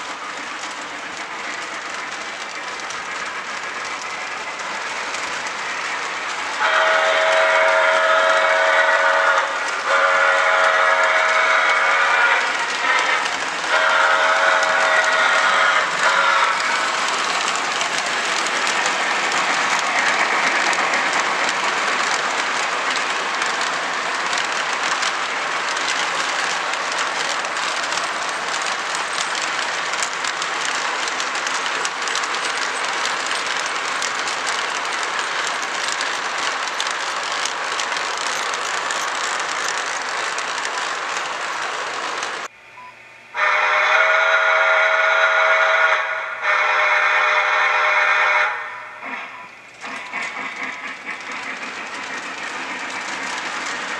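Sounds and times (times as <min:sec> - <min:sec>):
model train rolling on track: 0:00.0 - 0:42.5, 0:43.4 - 0:53.9
electronic train whistle: 0:06.6 - 0:16.7, 0:43.3 - 0:49.5.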